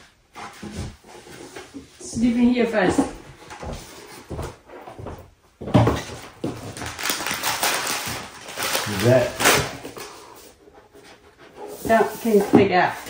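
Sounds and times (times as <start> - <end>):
paper and cardboard rustling: 6.0 - 13.0.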